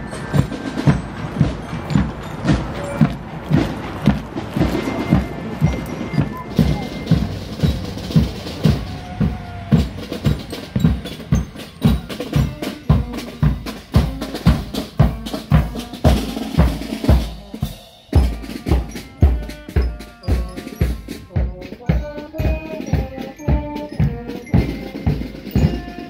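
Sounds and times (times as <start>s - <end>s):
bass drum beat: 0.0s - 26.0s
bell lyres playing tune: 0.0s - 26.0s
snare drums rattling: 0.0s - 26.0s.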